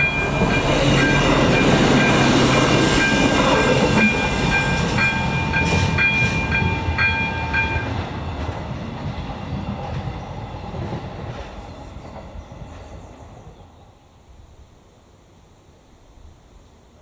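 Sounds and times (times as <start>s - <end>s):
diesel railcar rumble: 0.0s - 15.5s
level crossing bell ringing: 4.0s - 7.9s.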